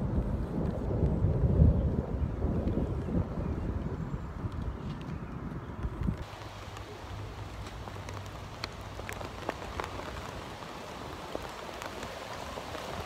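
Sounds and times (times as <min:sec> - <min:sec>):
rain falling: 0:00.0 - 0:05.1, 0:05.8 - 0:13.0
raindrops ticking on a surface: 0:00.1 - 0:01.6, 0:04.4 - 0:13.0.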